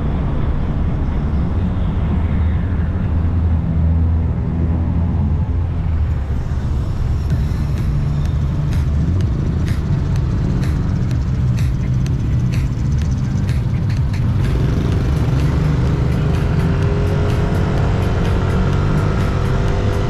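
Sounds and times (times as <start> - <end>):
whine: 0.0 - 20.0
scooter engine running: 6.7 - 20.0.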